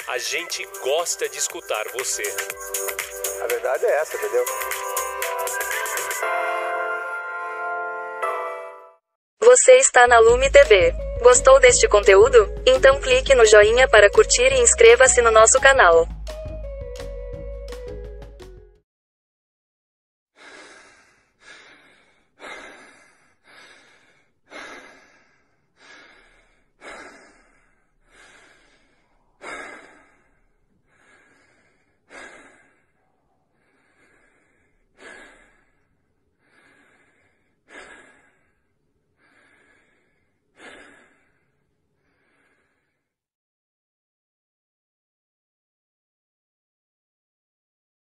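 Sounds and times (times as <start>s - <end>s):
person breathing heavily: 20.4s - 43.2s.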